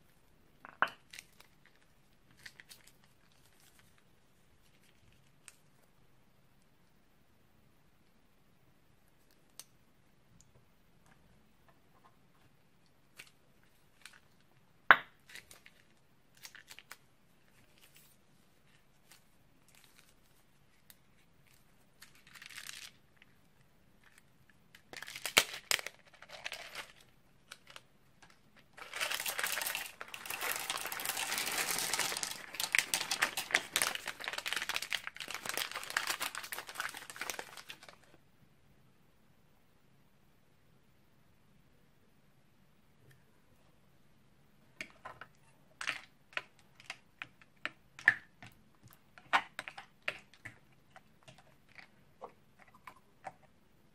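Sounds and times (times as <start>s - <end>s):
plastic bag crinkling: 21.5s - 23.0s, 24.8s - 38.1s.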